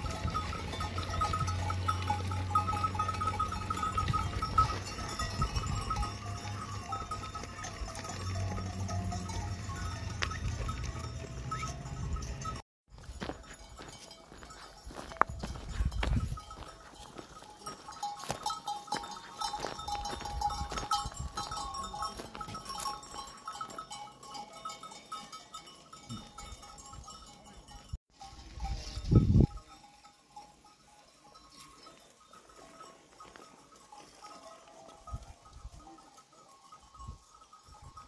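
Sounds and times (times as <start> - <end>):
animal bells clinking and ringing: 0.0 - 38.0.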